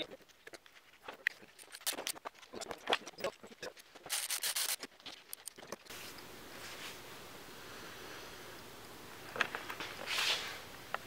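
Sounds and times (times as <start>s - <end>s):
steady low hiss: 5.9s - 11.0s.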